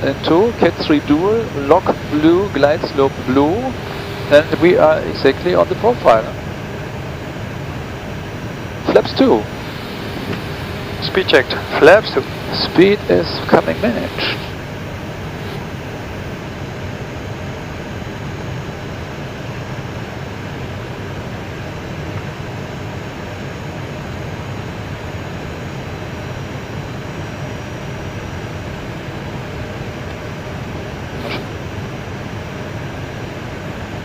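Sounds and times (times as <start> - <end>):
low hum: 0.0 - 19.8
cockpit airflow rush: 0.6 - 6.1.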